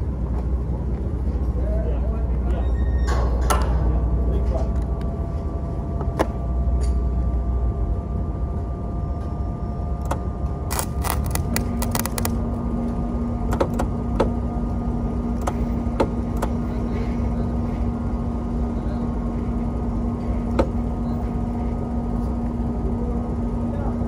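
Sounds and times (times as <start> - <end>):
steady low tone: 0.0 - 10.7
machine hum: 0.0 - 24.0
welding arc crackling: 10.7 - 12.4.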